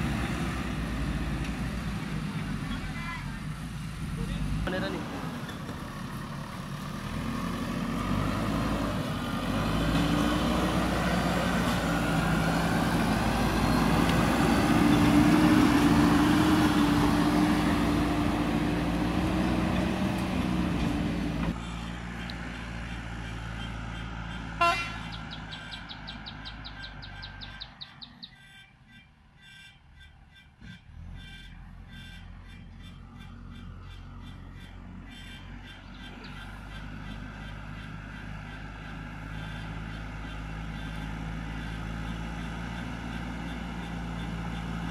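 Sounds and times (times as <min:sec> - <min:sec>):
diesel engine revving: 0:00.0 - 0:28.4, 0:30.5 - 0:44.9.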